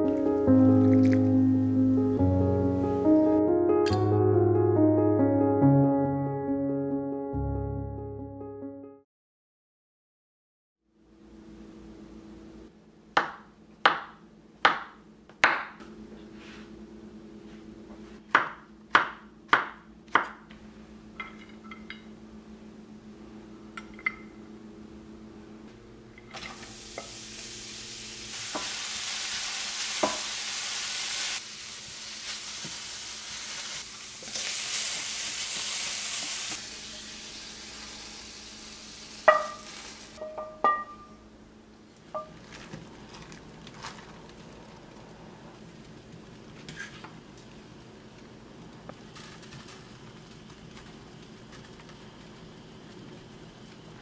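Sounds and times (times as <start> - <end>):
vegetables sizzling in frying pan: 26.4 - 40.6.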